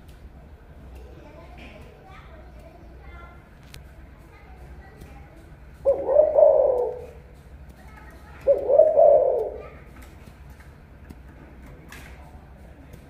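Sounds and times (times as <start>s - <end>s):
dove cooing: 5.8s - 7.3s, 8.4s - 9.9s.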